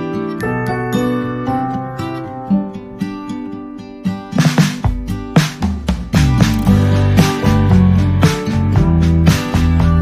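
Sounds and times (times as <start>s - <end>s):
guitar with percussive hits: 4.0s - 10.0s
deep bass: 6.1s - 10.0s.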